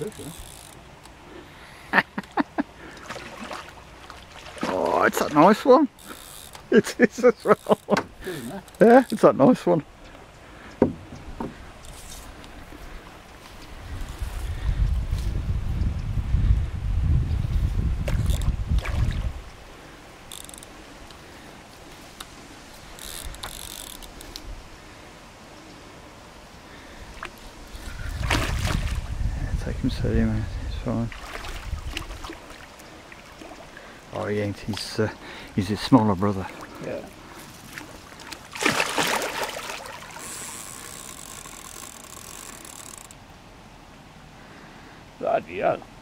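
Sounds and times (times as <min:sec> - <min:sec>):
fishing reel drag clicking: 0:00.0 - 0:01.2, 0:06.0 - 0:06.7, 0:20.2 - 0:21.2, 0:22.9 - 0:24.5, 0:40.2 - 0:43.2
fish splashing and thrashing: 0:02.7 - 0:06.7, 0:18.0 - 0:19.4, 0:27.1 - 0:29.2, 0:31.1 - 0:34.0, 0:36.3 - 0:43.2
wind rumble on microphone: 0:13.6 - 0:19.6, 0:27.6 - 0:32.4.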